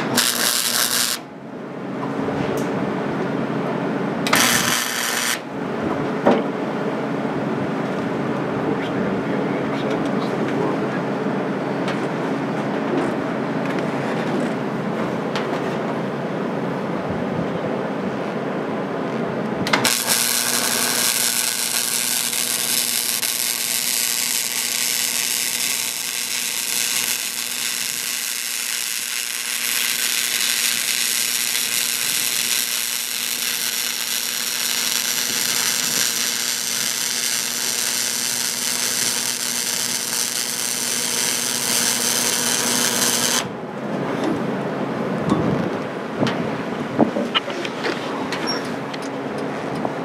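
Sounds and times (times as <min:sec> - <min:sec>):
welder arc sizzling: 0:00.0 - 0:01.3, 0:04.3 - 0:05.5, 0:19.7 - 0:43.5.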